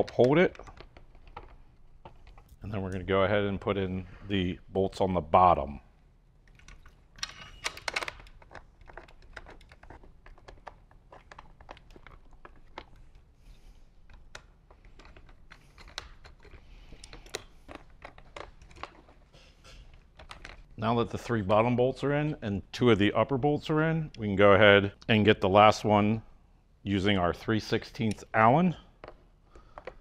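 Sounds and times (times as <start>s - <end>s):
small clicks and rattles of bolts: 0.0s - 3.0s, 6.4s - 20.7s, 29.0s - 30.0s
handling plastic parts: 0.0s - 3.9s, 6.3s - 21.3s, 28.0s - 30.0s.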